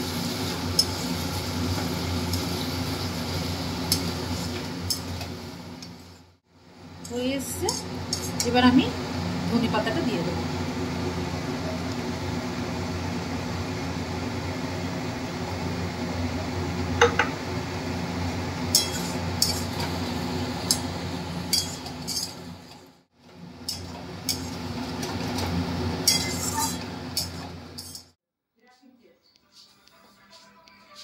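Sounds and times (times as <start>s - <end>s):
metal spatula scraping a pan: 18.7s - 19.9s, 21.5s - 22.7s, 23.7s - 24.6s, 26.0s - 28.2s.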